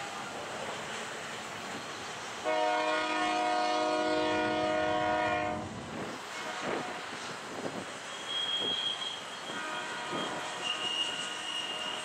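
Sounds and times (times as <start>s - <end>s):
train cars rolling past: 0.0s - 12.0s
locomotive air horn: 2.4s - 5.7s, 6.3s - 7.1s, 8.3s - 12.0s.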